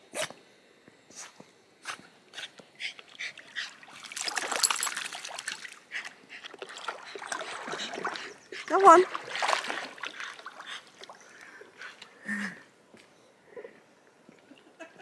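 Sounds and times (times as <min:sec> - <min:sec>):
dog wading through water: 0:02.9 - 0:12.2
dog splashing in water: 0:03.4 - 0:05.8, 0:06.4 - 0:11.1.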